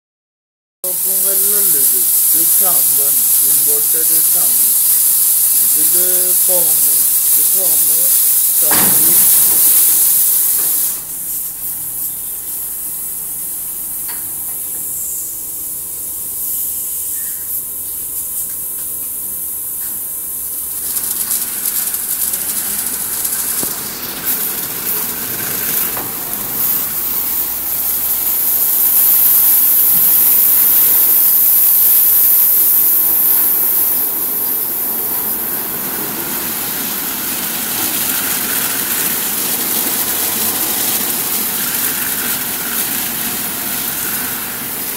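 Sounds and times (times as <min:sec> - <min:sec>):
water jets spraying: 0:00.9 - 0:15.0, 0:19.2 - 0:44.9
rotating brushes: 0:01.0 - 0:11.1, 0:20.6 - 0:31.3, 0:35.1 - 0:44.9.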